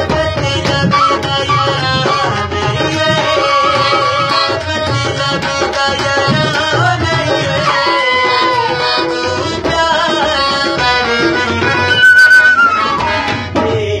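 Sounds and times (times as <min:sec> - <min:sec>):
harmonium: 0:00.0 - 0:14.0
wooden flute melody: 0:00.9 - 0:02.4, 0:03.4 - 0:04.6, 0:11.7 - 0:13.4.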